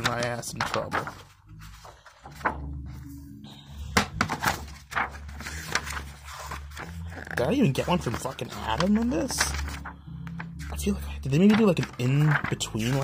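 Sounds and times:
book pages flipping: 0.0 - 13.0
soft thunks of book: 4.0 - 4.9.

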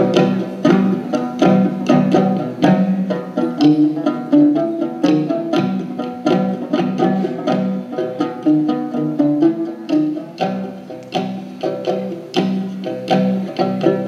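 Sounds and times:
plucked lute music: 0.0 - 14.0
second stringed instrument: 0.0 - 14.0.

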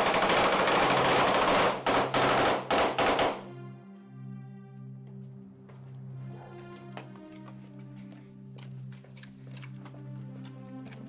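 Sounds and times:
automatic rifle fire: 0.0 - 3.5.

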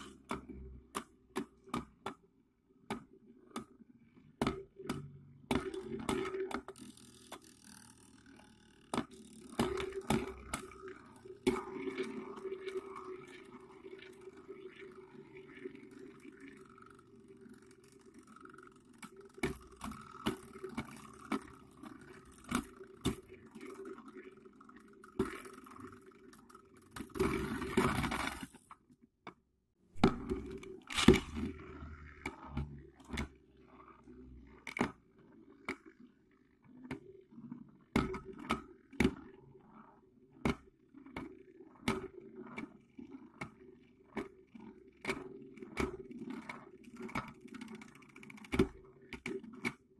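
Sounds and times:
spinning tops whirring: 5.8 - 28.7.

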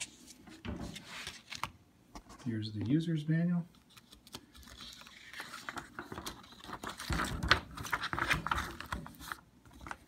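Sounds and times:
paper rustling and crackling: 3.8 - 10.0.

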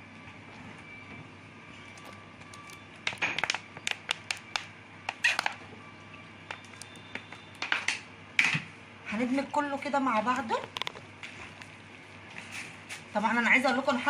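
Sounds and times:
plastic bottle crackling: 1.8 - 5.7, 6.5 - 8.0, 10.3 - 11.8.

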